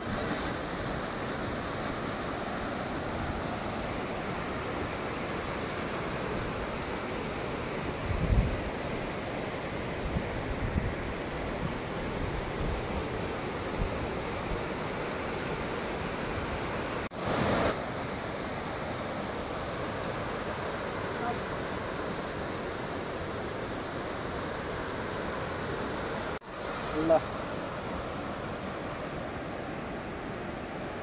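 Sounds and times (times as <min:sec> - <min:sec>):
river rushing: 0:00.0 - 0:31.0.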